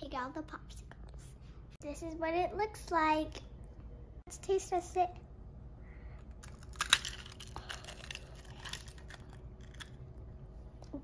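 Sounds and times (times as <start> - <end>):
crunchy clicks: 6.3 - 10.0.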